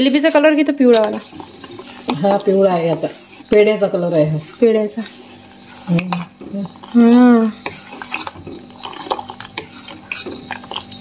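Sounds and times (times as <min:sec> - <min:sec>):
spoon scraping steel pot: 0:00.0 - 0:11.0
person humming: 0:05.9 - 0:07.6.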